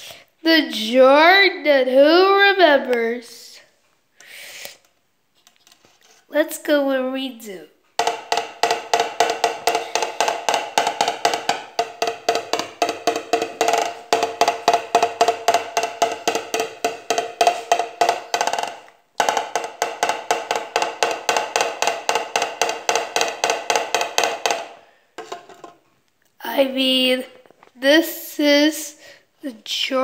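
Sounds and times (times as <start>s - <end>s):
hollow woodblock-like knocking: 8.0s - 25.8s.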